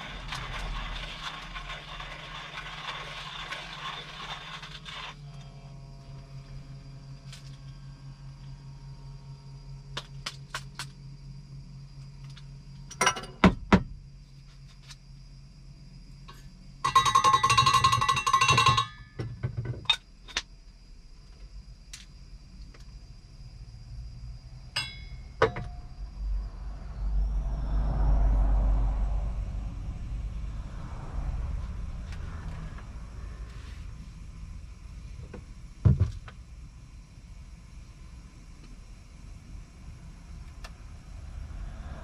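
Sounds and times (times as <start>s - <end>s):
small objects clicking and clinking: 0.0s - 5.4s, 16.9s - 19.0s
steady low hum: 0.0s - 17.0s, 20.0s - 42.0s
low rumble: 25.6s - 35.7s, 39.3s - 42.0s.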